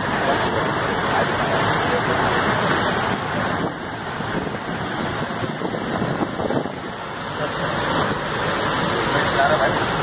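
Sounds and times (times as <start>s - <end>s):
floodwater rushing and churning: 0.0s - 10.0s.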